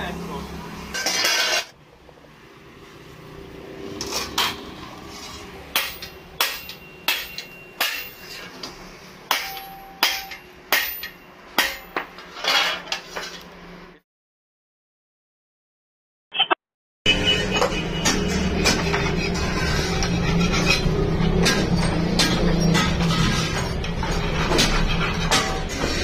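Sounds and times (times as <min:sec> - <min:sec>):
hammer striking steel plates: 0:05.7 - 0:08.5, 0:09.3 - 0:12.2, 0:17.1 - 0:26.0.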